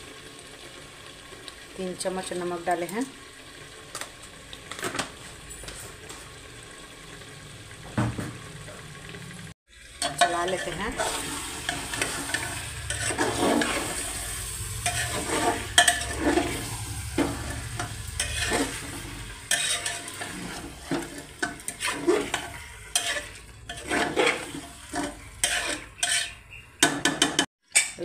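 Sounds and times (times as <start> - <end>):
chicken frying: 0.0 - 27.5
spatula scraping a pot: 10.0 - 27.5.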